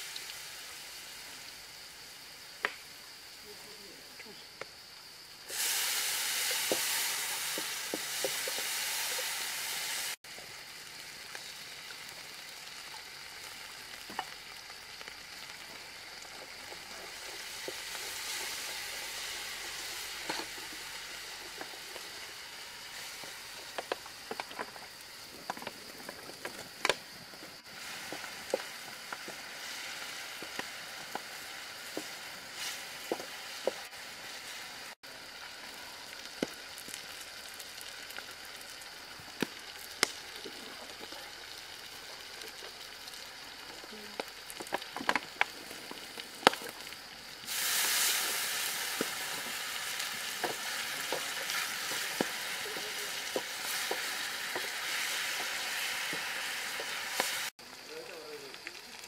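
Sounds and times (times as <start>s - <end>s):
chili and garlic sizzling in oil: 0.0s - 59.0s
oil popping and crackling: 5.5s - 59.0s
wooden spatula stirring in wok: 47.6s - 57.5s.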